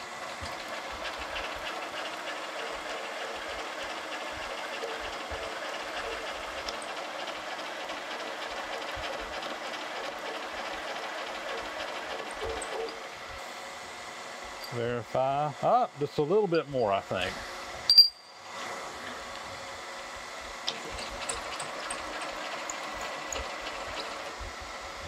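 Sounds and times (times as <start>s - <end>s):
cutter chattering on metal: 0.3s - 13.0s, 20.7s - 24.4s.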